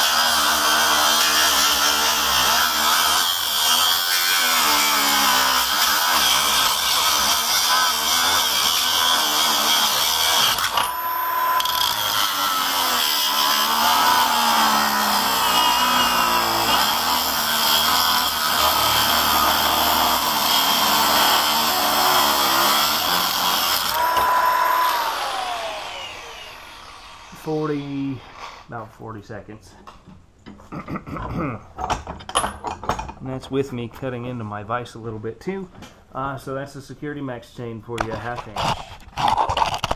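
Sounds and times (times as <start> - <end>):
angle grinder cutting steel: 0.0 - 28.7.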